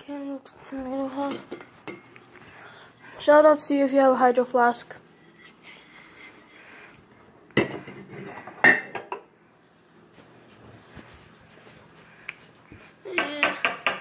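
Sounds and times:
dishes and cutlery clattering: 7.6s - 9.3s.

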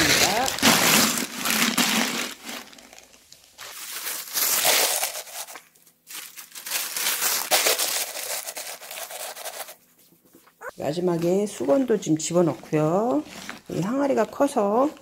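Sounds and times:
wet newspaper rustling: 0.0s - 10.1s.

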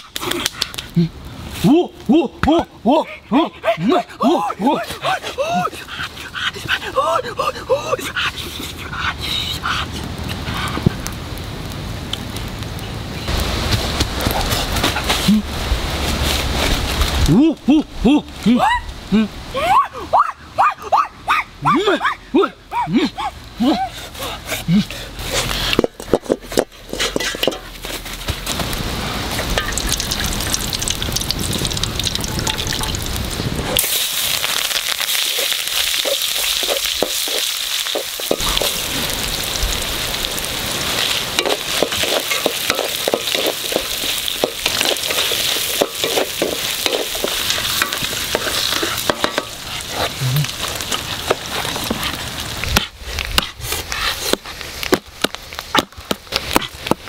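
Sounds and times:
onion and spices sizzling in oil: 9.2s - 19.5s, 25.1s - 57.0s.

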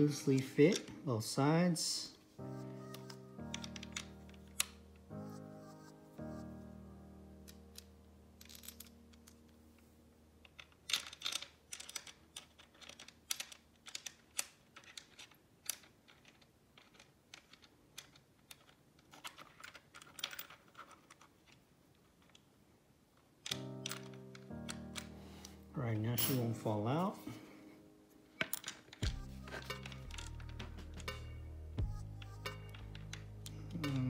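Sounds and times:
small metal parts clicking: 3.0s - 4.8s, 7.4s - 9.5s, 10.4s - 22.5s, 23.4s - 25.2s, 28.4s - 31.4s, 32.1s - 34.0s.

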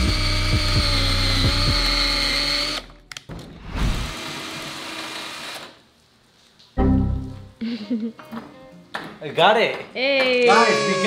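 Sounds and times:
cordless drill boring into lock: 0.0s - 2.9s.

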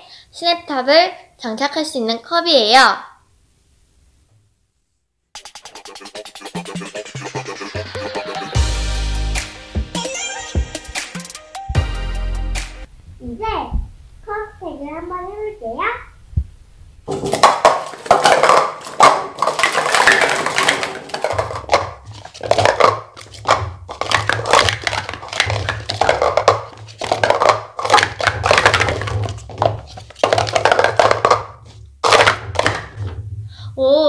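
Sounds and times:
plastic cups clattering: 17.1s - 33.2s.

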